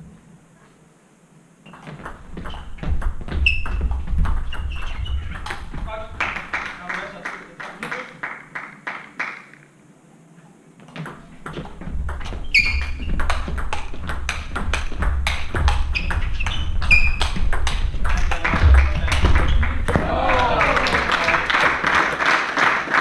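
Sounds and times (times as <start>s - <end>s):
shoe squeaks on floor: 1.6s - 5.8s, 11.6s - 13.5s, 15.8s - 17.4s, 18.7s - 19.8s.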